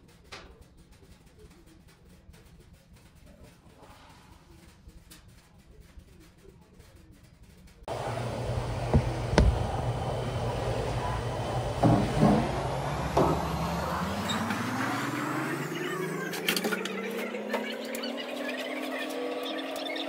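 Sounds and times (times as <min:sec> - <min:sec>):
motor humming: 0:07.9 - 0:17.0
sharp knocks: 0:08.8 - 0:10.0.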